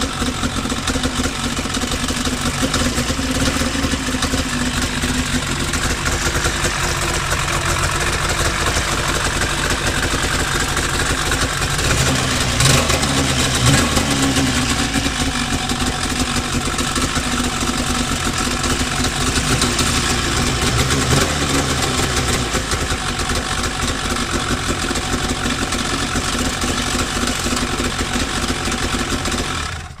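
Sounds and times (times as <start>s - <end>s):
two-stroke snowmobile engine running: 0.0s - 30.0s.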